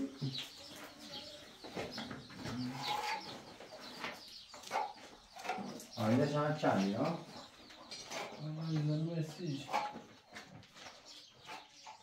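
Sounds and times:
chickens clucking: 0.0s - 12.0s
people talking: 8.4s - 9.8s.

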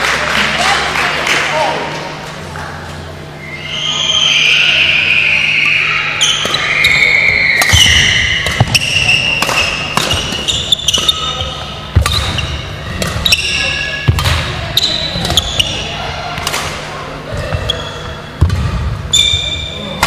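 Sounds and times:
rackets striking shuttlecock: 6.2s - 7.0s, 7.6s - 16.9s.

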